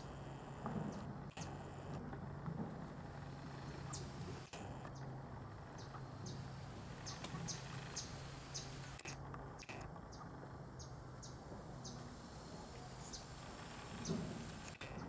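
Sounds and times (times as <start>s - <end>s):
low hum: 0.0s - 15.0s
background hiss: 6.0s - 9.8s.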